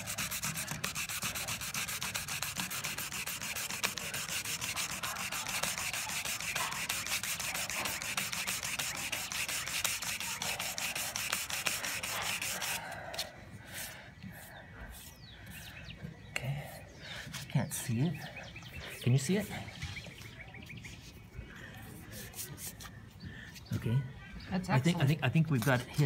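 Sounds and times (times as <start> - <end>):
sandpaper rubbing on plastic: 0.0 - 15.7.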